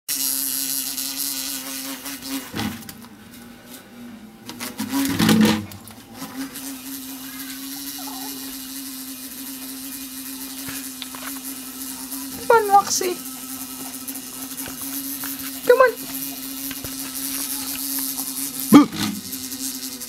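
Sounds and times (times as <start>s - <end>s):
trapped bee buzzing: 0.1s - 20.0s.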